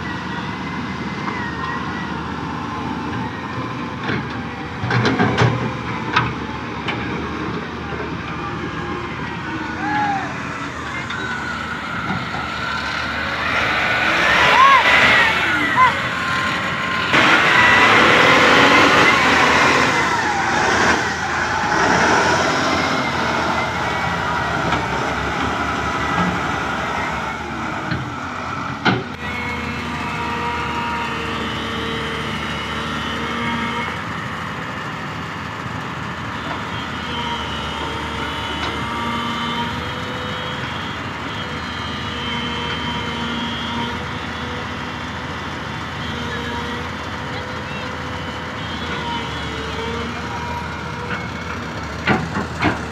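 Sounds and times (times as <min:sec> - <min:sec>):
excavator diesel engine and hydraulics: 0:00.0 - 0:52.9
wheel loader running: 0:00.0 - 0:52.9
whining tones: 0:00.0 - 0:52.9.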